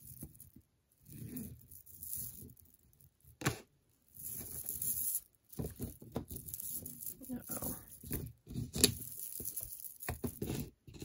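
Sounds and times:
glass beads clicking together: 4.2s - 10.6s.

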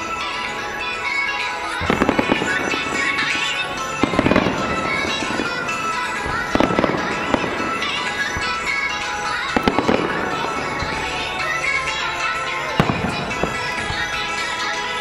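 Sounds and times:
firework bangs and crackles: 0.0s - 15.0s
music: 0.0s - 15.0s.

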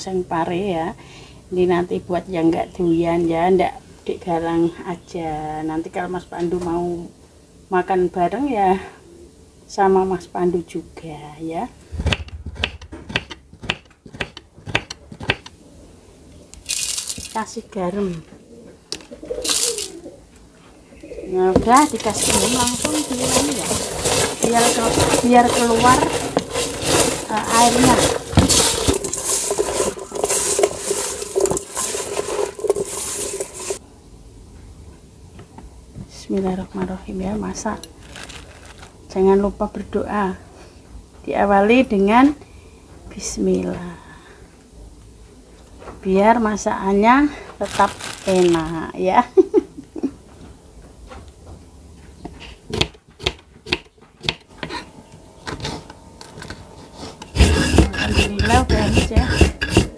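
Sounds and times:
knife chopping on wooden board: 12.0s - 15.5s, 52.7s - 54.8s
wet crunching and squishing: 16.6s - 17.6s, 21.6s - 33.8s, 37.8s - 39.0s, 47.6s - 48.8s.

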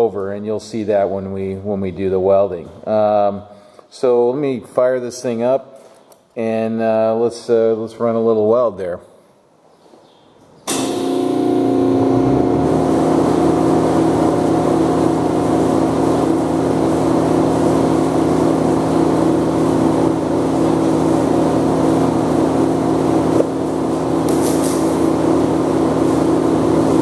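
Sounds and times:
welding machine humming: 10.7s - 27.0s.

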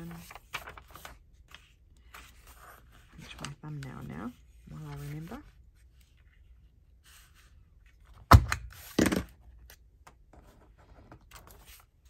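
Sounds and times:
paper and fabric rustling: 0.0s - 8.0s.

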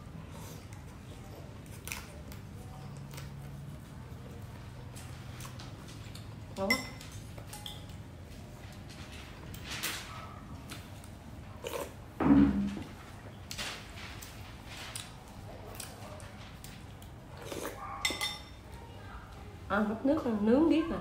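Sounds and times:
utensils clinking on glass bowl: 6.6s - 8.0s, 18.0s - 18.6s.

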